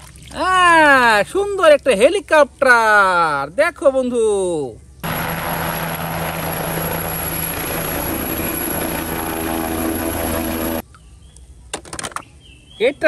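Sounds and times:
helicopter blade beat: 5.0s - 10.8s
helicopter engines running: 5.0s - 10.8s.

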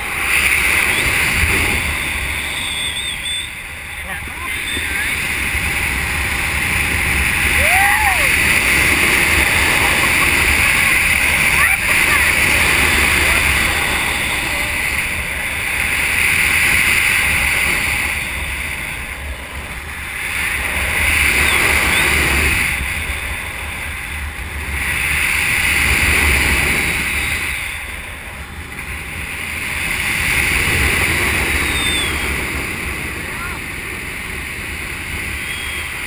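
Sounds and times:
wind buffeting microphone: 0.0s - 36.0s.

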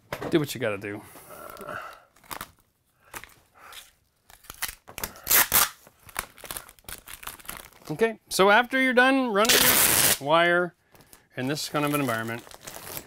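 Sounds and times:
plastic crinkling: 2.1s - 8.0s, 10.9s - 13.0s
tape ripping off roll: 4.3s - 6.4s, 9.4s - 10.2s.

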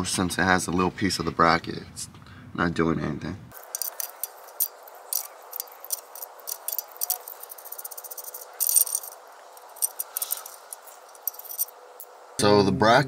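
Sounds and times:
metal clinking and rattling: 3.5s - 12.1s
socket wrench clicking: 3.6s - 11.7s.

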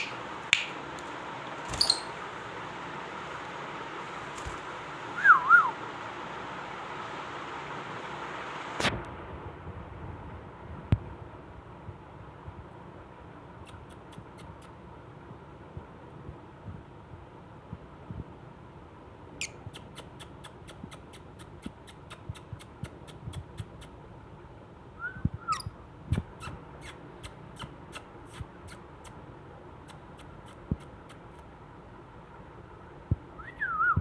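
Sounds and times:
parrot squeaks gliding: 1.7s - 2.2s, 25.5s - 25.7s.

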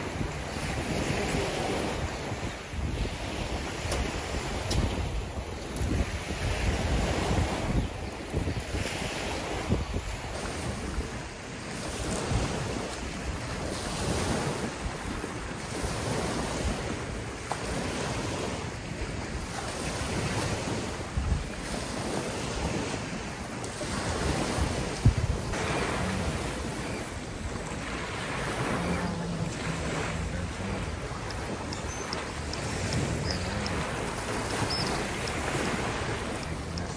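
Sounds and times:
small waves breaking on beach: 0.0s - 36.9s
wind rumbling on microphone: 0.0s - 36.9s.

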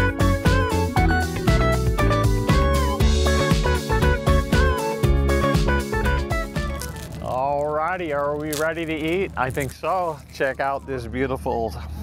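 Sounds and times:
guitar tune over steady beat: 0.0s - 7.2s.

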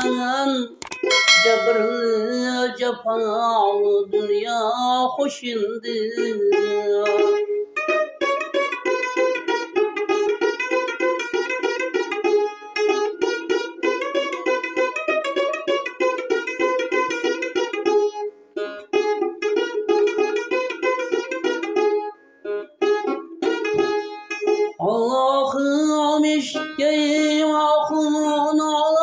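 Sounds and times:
man singing: 0.0s - 7.7s, 24.8s - 29.0s
plucked lute notes: 0.0s - 29.0s.

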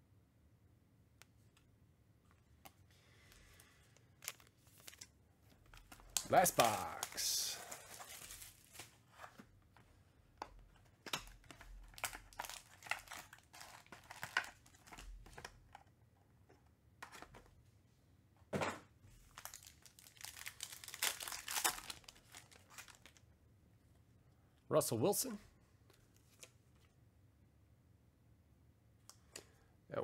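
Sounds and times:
plastic wrap crinkling: 3.5s - 9.2s, 11.3s - 15.4s, 19.2s - 23.2s
foil packs crinkling and tearing: 5.7s - 9.0s, 11.4s - 15.0s, 19.2s - 23.2s.

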